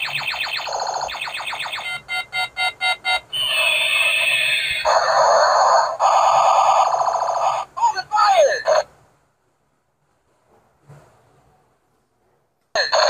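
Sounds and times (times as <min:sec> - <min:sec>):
quick electronic beeps: 0:00.0 - 0:04.8.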